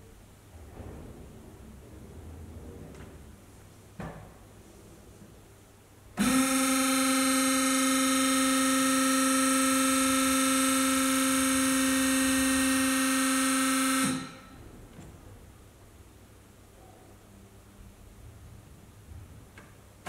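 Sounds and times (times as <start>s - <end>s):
power hacksaw motor whining: 6.2s - 14.4s.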